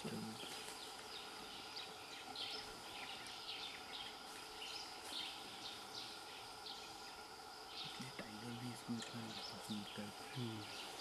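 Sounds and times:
birds chirping: 0.0 - 11.0
insects droning: 0.0 - 11.0.

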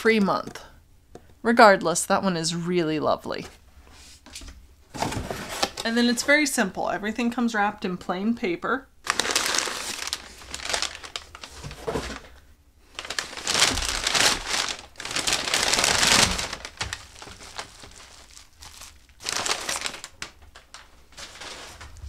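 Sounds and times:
paper crinkling and rustling: 9.1 - 22.0.

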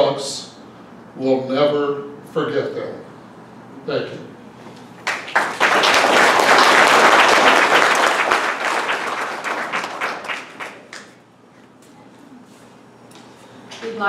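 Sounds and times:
audience applauding: 5.0 - 11.2.

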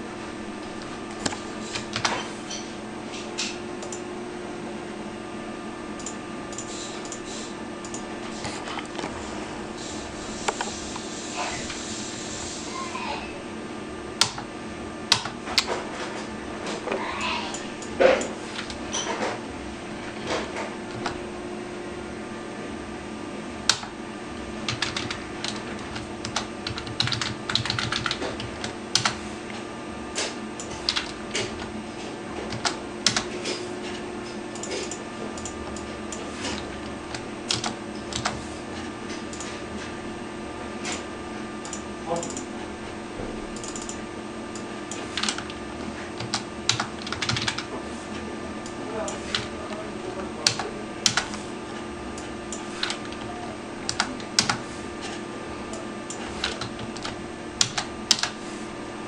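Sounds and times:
steady low hum: 0.0 - 59.0
computer keys clicking: 0.8 - 2.2, 3.8 - 4.0, 6.0 - 7.2, 7.8 - 8.1, 14.2 - 14.5, 15.1 - 15.7, 20.9 - 21.2, 23.7 - 23.9, 24.7 - 29.2, 30.6 - 31.7, 32.5 - 33.3, 34.5 - 38.4, 41.6 - 42.5, 43.6 - 45.6, 46.2 - 47.7, 50.4 - 51.4, 52.2 - 54.6, 55.7 - 58.4.

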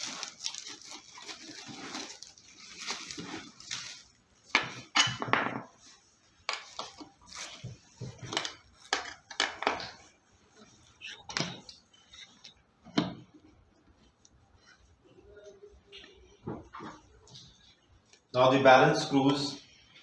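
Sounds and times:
plastic packing rustling: 0.0 - 12.5.

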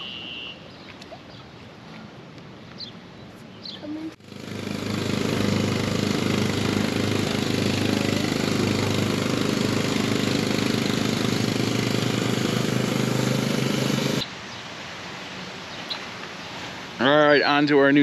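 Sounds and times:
small engine running: 4.2 - 14.2.

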